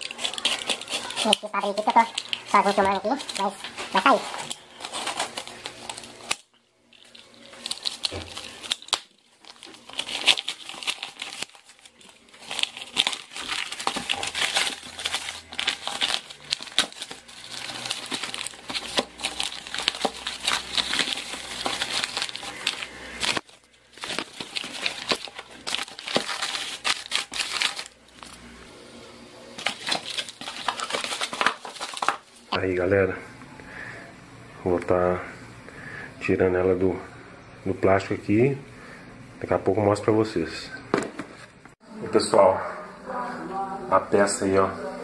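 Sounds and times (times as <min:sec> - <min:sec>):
paper tearing and crumpling: 0:00.0 - 0:28.4, 0:29.6 - 0:32.5.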